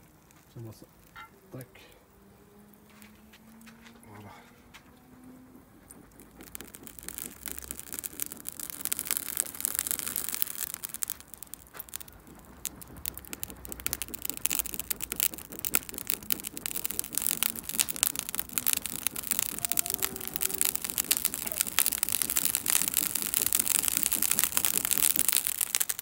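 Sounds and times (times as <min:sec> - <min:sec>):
coals crackling and popping: 0:00.0 - 0:26.0
steak sizzling on a grill: 0:06.1 - 0:26.0.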